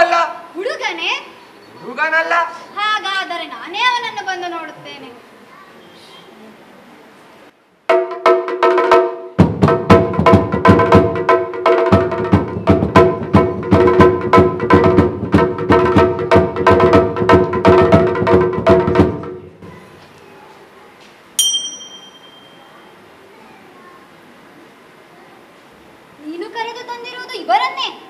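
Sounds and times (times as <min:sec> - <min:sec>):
fast hand drum strokes: 0:07.9 - 0:19.8
bright metallic strike: 0:21.4 - 0:22.9.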